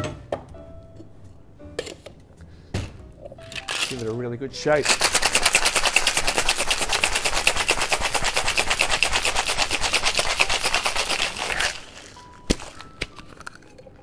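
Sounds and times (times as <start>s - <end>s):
ice rattling in cocktail shaker: 3.4s - 4.2s, 4.8s - 14.0s.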